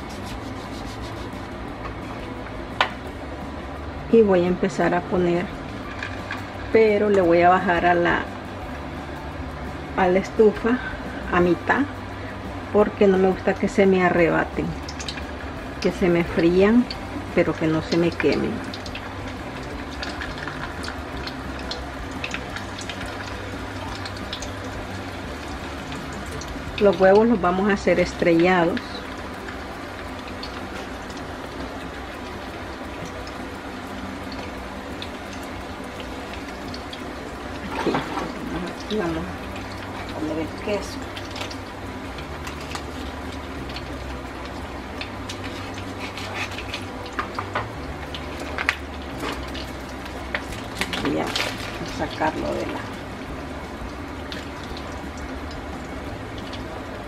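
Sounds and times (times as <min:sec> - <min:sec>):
salami sizzling in pan: 0:00.0 - 0:03.8, 0:04.6 - 0:57.0.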